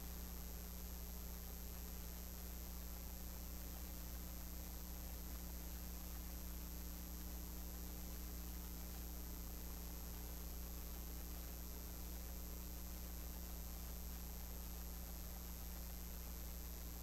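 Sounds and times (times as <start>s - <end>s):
constant hiss: 0.0s - 17.0s
electrical mains hum: 0.0s - 17.0s.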